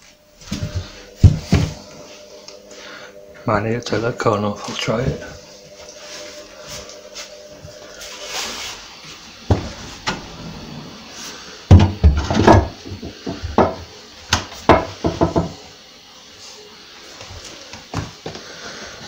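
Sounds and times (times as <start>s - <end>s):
wooden knocks and thuds: 14.7s - 15.5s.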